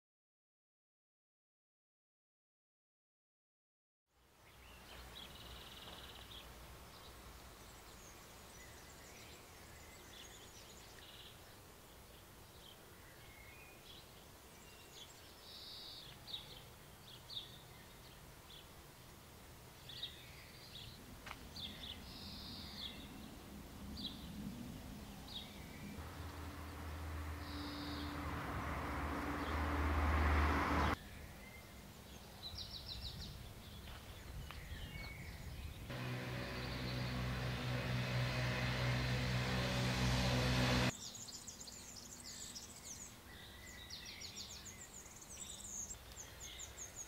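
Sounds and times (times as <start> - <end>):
small birds chirping: 25.1 - 29.9, 41.0 - 47.0
low steady hum: 25.7 - 30.0, 35.9 - 40.9.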